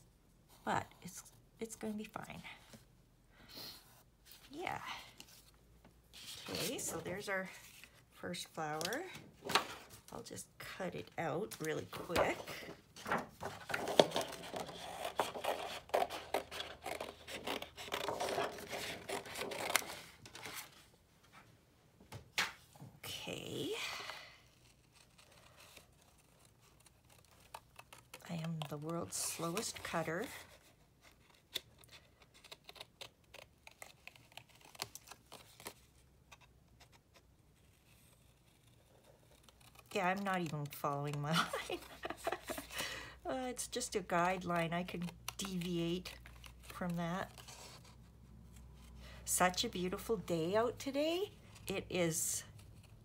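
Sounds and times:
paper rustling: 11.5s - 21.5s, 24.8s - 42.8s.

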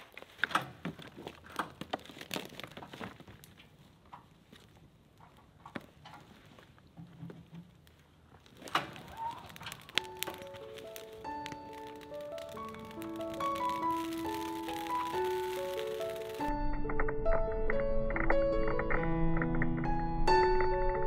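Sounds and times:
cardboard and twigs rustling: 0.0s - 16.5s
brush fire crackling: 0.0s - 16.8s
music: 10.0s - 21.0s.

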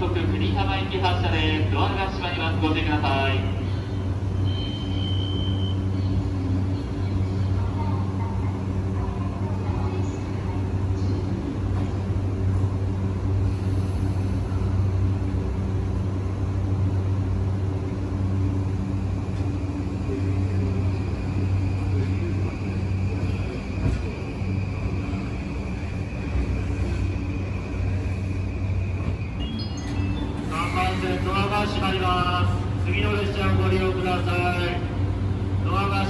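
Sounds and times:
electric train hum and rumble: 0.0s - 36.0s.

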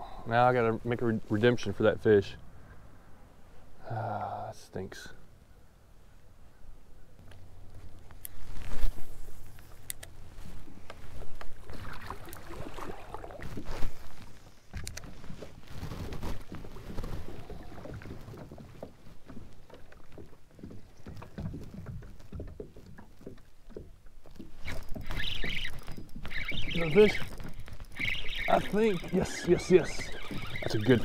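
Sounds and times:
water lapping against kayak hull: 10.2s - 31.0s
fishing rod and reel knocks: 22.4s - 31.0s.

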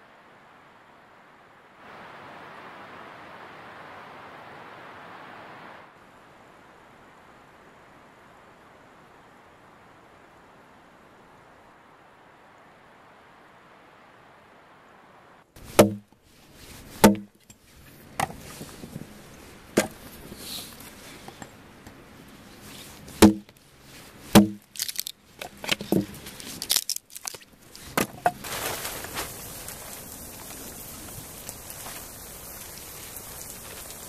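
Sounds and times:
steady hiss: 0.0s - 34.0s
blade chopping wood: 15.7s - 16.1s, 17.0s - 17.3s, 19.8s - 20.0s, 23.2s - 23.5s, 24.3s - 28.4s.

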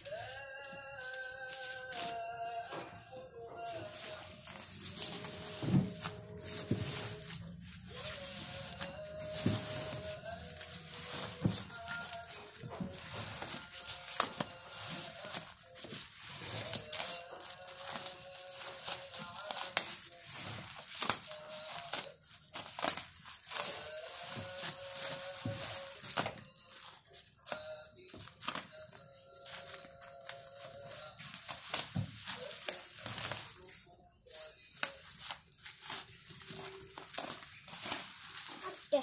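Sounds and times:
background music: 0.0s - 35.0s
plastic wrapping crinkling: 0.0s - 39.0s.

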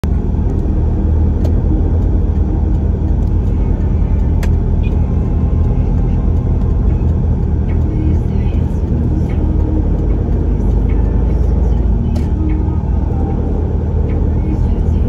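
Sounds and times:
sharp clicks: 0.0s - 13.5s
vehicle engine and road noise: 0.0s - 15.0s.

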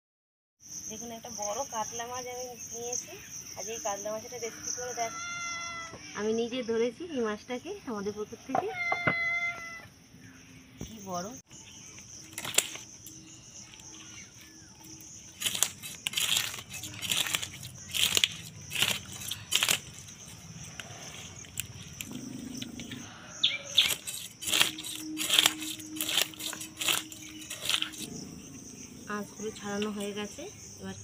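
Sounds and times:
fish scales scraped on a blade: 23.7s - 28.1s.

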